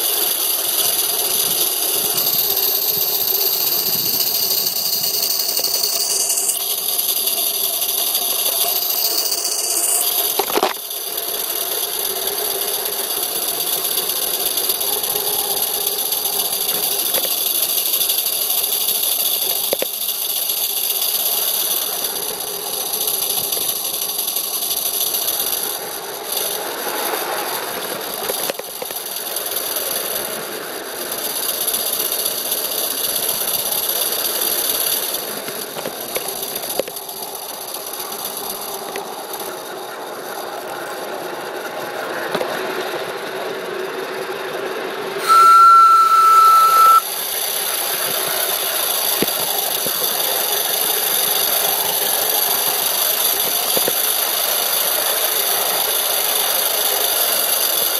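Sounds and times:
model steam locomotive hiss and rattle: 0.0s - 57.9s
steam whistle blast: 45.2s - 47.1s.

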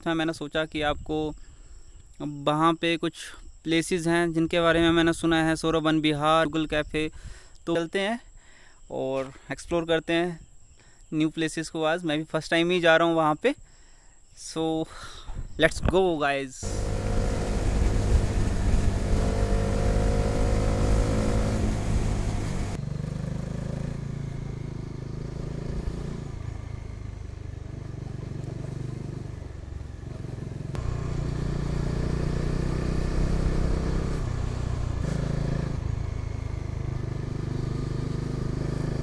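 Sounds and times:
wind rumble on microphone: 16.6s - 22.8s
motorcycle engine running: 16.6s - 39.0s.

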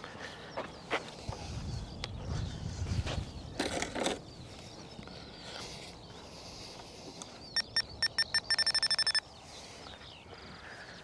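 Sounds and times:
faint bird chirps: 4.3s - 11.0s
short electronic beeps: 7.6s - 9.2s.

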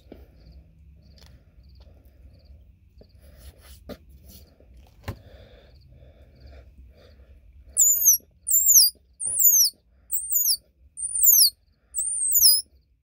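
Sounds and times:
high squeaks of squirrel call: 7.8s - 12.6s.

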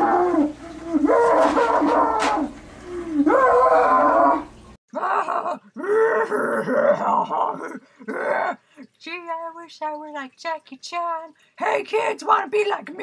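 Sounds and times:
man wailing howls: 0.0s - 8.5s.

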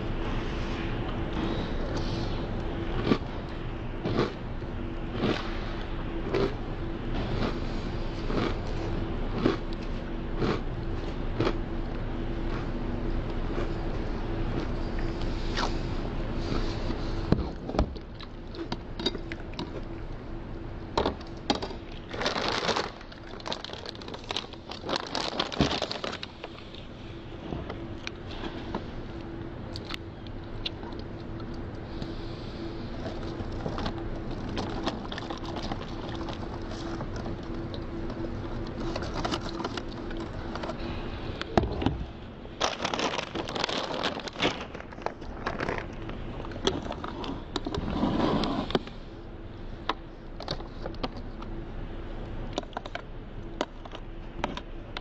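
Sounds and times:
faint steady hum: 0.0s - 55.0s
plastic bag rustling: 21.9s - 26.9s, 33.0s - 41.2s, 42.6s - 48.4s.

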